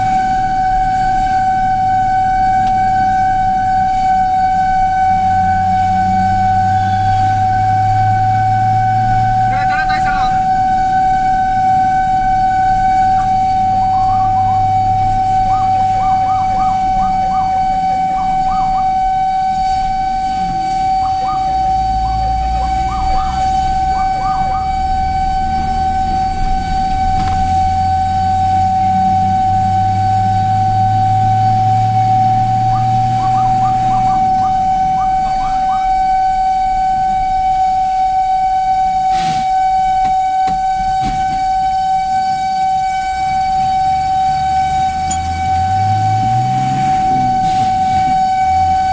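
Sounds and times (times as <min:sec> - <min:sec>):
siren rapid chirps: 0:00.0 - 0:48.9
siren steady high tone: 0:00.0 - 0:48.9
truck engine: 0:00.0 - 0:48.9.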